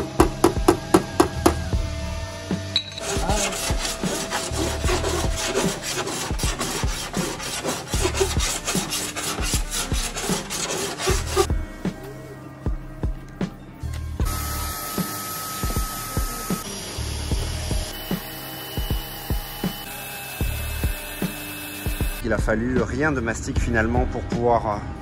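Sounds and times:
sanding block on metal: 3.0 - 11.5.

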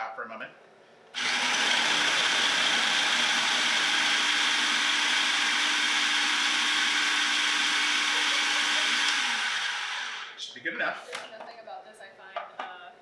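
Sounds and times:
food processor motor whine: 1.2 - 10.4.

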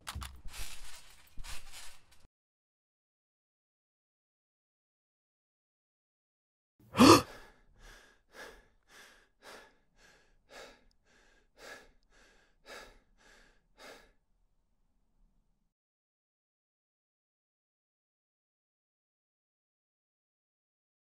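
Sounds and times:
heavy breathing: 6.9 - 14.2
young man gasping: 6.9 - 14.2.

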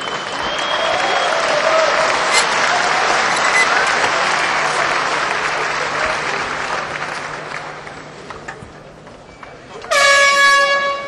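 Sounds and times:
crowd applauding: 0.0 - 8.8.

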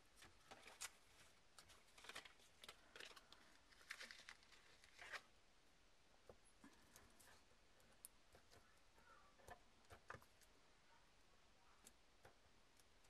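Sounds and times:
paper backing crinkling: 0.2 - 5.3.

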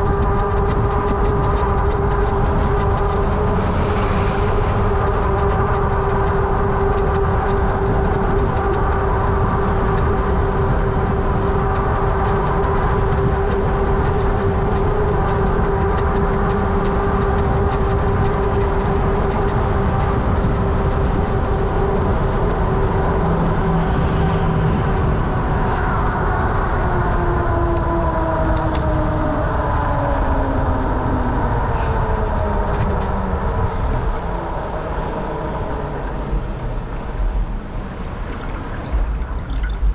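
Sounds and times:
low rumble: 0.0 - 39.9.

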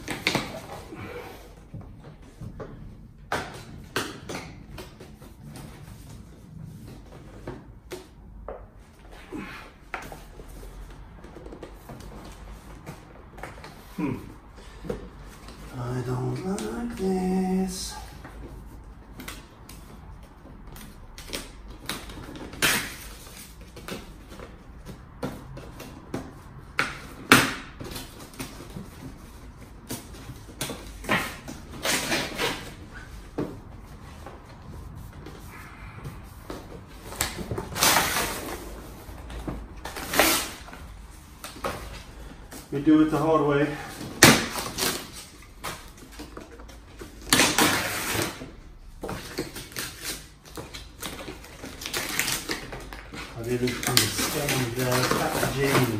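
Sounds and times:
cardboard and paper packaging tearing: 37.2 - 38.8, 39.8 - 40.8, 47.0 - 48.6, 49.2 - 55.9.

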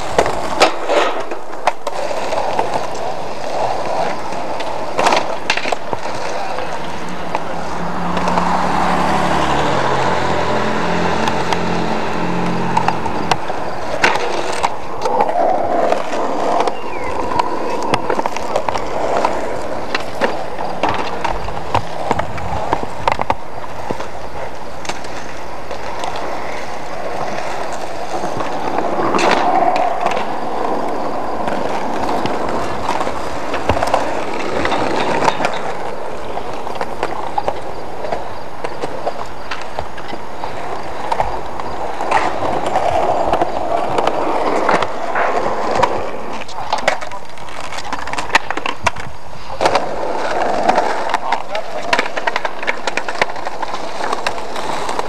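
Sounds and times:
skateboard clacks on ground: 0.0 - 55.0
skateboard wheels rolling on concrete: 0.0 - 55.0.

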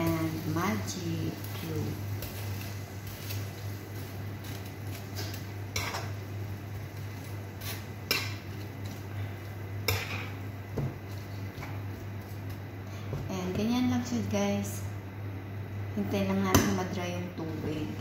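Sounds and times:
utensil scraping a wok: 1.5 - 10.4.

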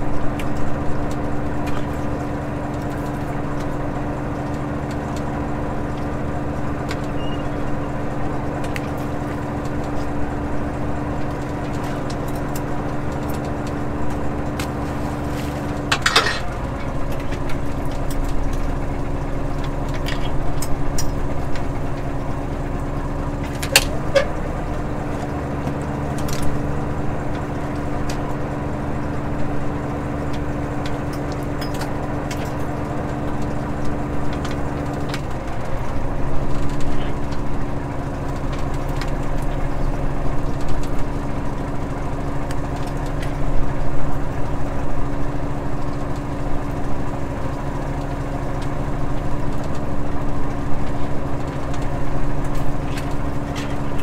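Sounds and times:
boat engine running: 0.0 - 54.0.

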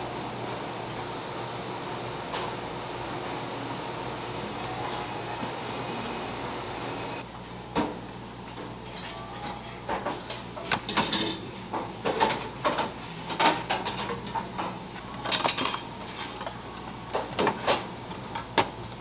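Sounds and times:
dishes and utensils clinking: 15.2 - 16.5.

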